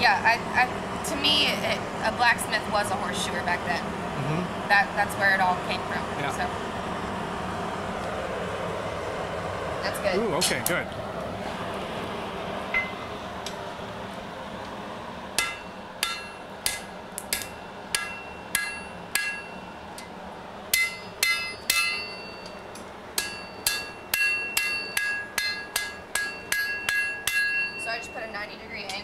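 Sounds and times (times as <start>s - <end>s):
anvil ringing: 15.4s - 20.1s, 20.7s - 22.6s, 23.2s - 29.0s
hammer striking steel on anvil: 15.4s - 20.1s, 20.7s - 22.6s, 23.2s - 29.0s.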